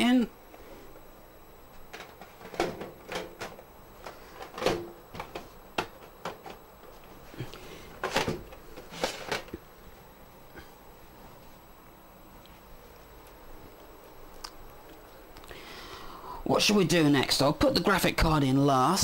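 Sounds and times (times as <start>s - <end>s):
clicks and knocks of metal and plastic: 1.9s - 6.6s, 8.0s - 9.6s.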